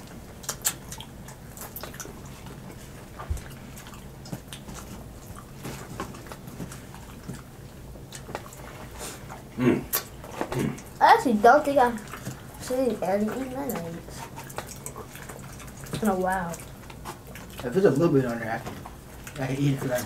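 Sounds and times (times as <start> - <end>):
chewing clicks and lip smacks: 0.0 - 10.4, 13.6 - 17.8.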